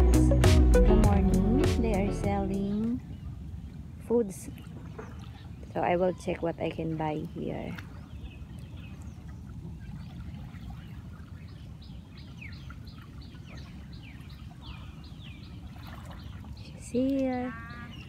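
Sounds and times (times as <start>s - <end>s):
faint low rumble: 0.0s - 7.9s
bird chirping: 10.7s - 18.0s.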